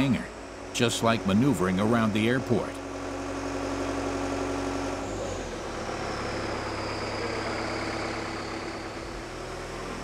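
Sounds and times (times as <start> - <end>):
aircraft tug machine hum: 0.0 - 10.0
faint high whine: 6.4 - 9.2.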